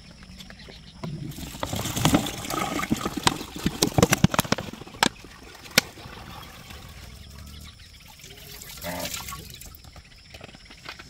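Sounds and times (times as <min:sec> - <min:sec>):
liquid glugging into plastic tub: 0:01.0 - 0:09.8.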